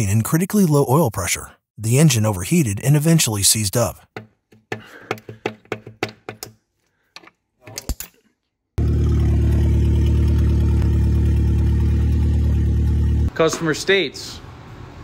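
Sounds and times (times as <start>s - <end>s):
metal tool clicks and knocks: 4.2s - 6.6s.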